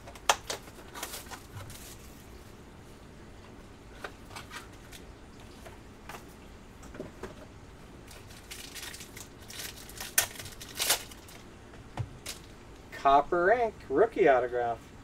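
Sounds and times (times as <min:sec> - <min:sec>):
foil wrapper crinkling: 0:00.0 - 0:02.4, 0:08.1 - 0:11.5.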